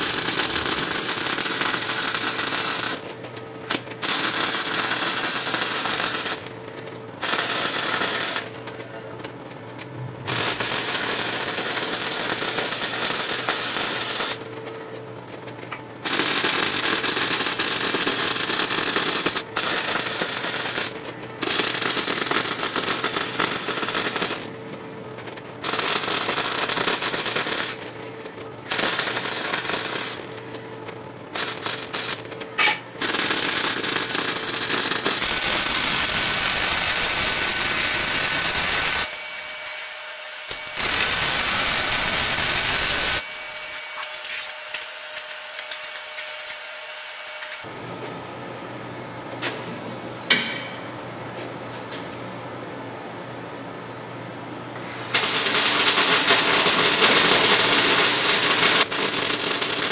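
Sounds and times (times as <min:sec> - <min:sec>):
welder arc crackling: 0:00.0 - 0:06.6, 0:07.2 - 0:08.9, 0:10.3 - 0:14.4, 0:16.0 - 0:24.6, 0:25.6 - 0:47.7, 0:55.1 - 0:59.9.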